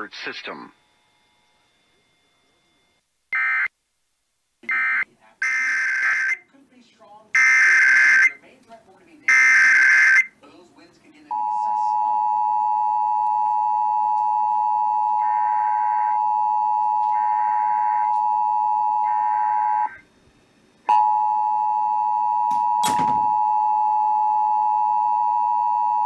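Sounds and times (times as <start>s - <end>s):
two-tone alert signal from speaker: 11.3s - 20.0s.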